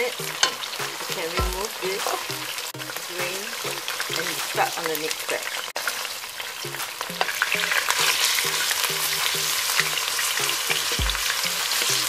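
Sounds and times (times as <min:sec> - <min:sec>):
metal tongs turning food: 0:00.0 - 0:04.9
chicken sizzling in hot oil: 0:00.0 - 0:12.0.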